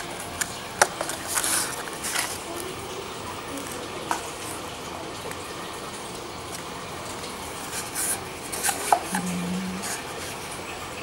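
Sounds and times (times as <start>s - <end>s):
brief low tone: 9.2s - 9.9s.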